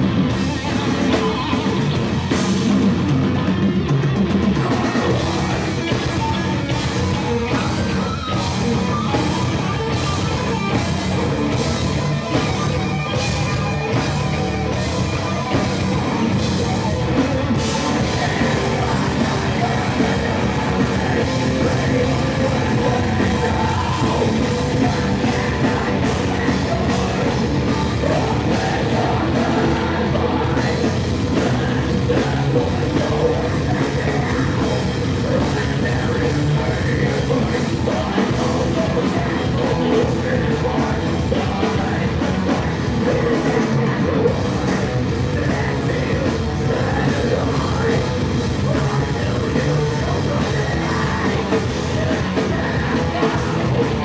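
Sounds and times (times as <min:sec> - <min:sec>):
heavy metal band playing live: 0:00.0 - 0:54.0
pounding drum beat: 0:00.0 - 0:54.0.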